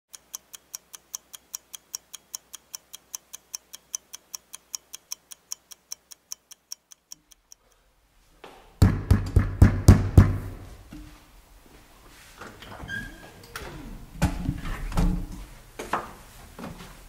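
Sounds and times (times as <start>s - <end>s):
clock ticking fast: 0.1s - 7.7s.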